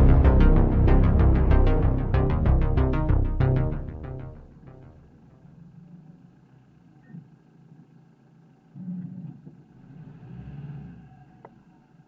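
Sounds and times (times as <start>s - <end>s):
car engine and tyre rumble: 5.2s - 12.0s.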